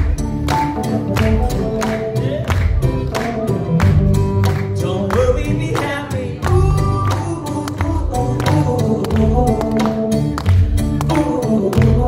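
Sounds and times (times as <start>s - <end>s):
keyboard and acoustic guitar: 0.0s - 12.0s
person singing: 4.6s - 12.0s.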